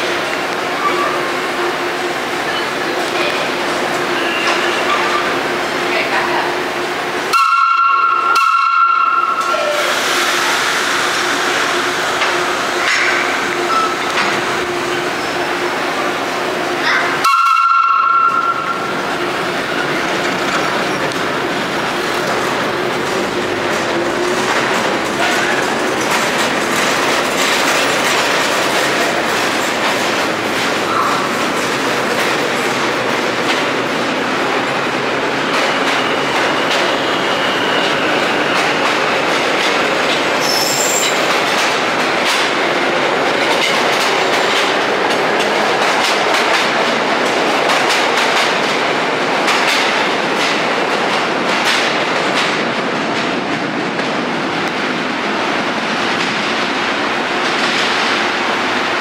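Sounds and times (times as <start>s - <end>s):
subway wheels clattering over joints: 0.0s - 59.0s
train running noise: 0.0s - 59.0s
high wheel squeal: 35.7s - 38.6s, 40.4s - 41.2s.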